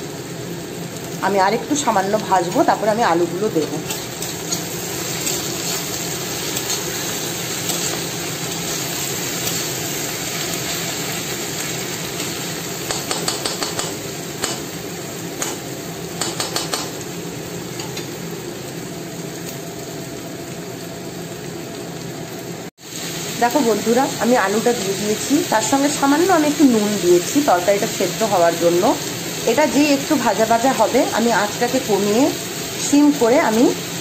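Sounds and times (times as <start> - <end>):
vegetables sizzling in oil: 0.0 - 34.0
spatula scraping a wok: 3.6 - 14.7.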